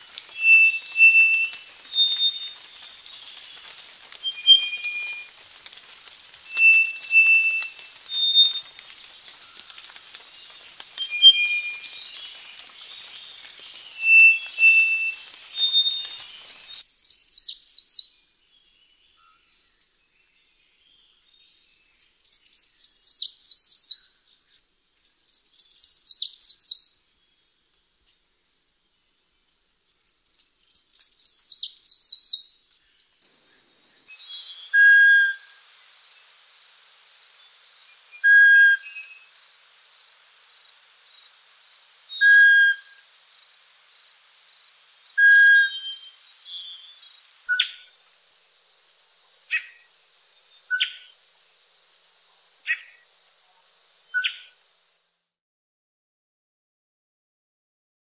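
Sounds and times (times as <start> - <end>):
high bird whistle: 0.0 - 2.5, 4.2 - 5.3, 5.9 - 8.6, 11.0 - 12.0, 13.4 - 16.1
birds twittering trills: 0.0 - 27.5, 30.0 - 34.8, 49.4 - 51.2
faint steady hiss: 0.0 - 55.4.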